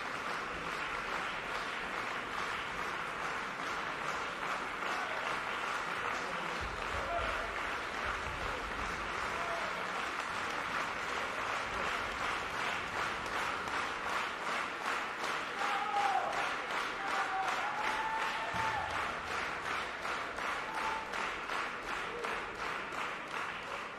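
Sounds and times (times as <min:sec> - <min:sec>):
audience applauding: 0:00.0 - 0:23.9.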